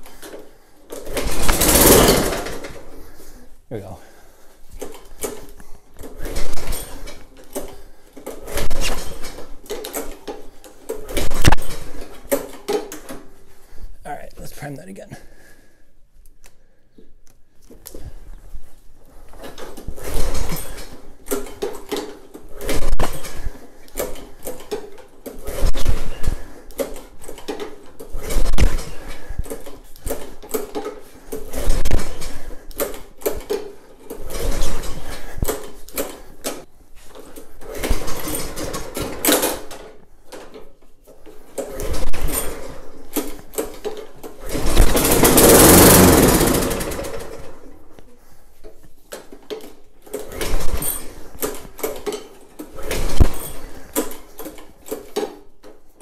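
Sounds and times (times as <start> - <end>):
lawn mower engine turning over: 0.9 - 3.0, 44.4 - 47.7.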